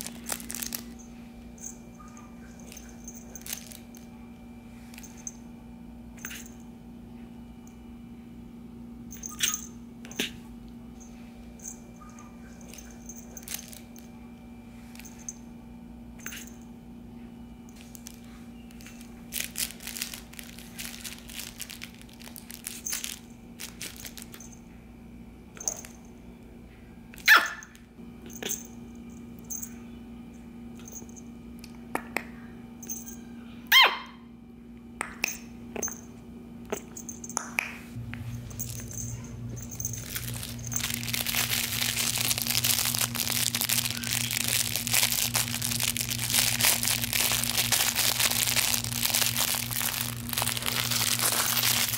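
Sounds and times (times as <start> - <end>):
puppy yipping and barking: 27.2 - 27.7, 33.7 - 34.2.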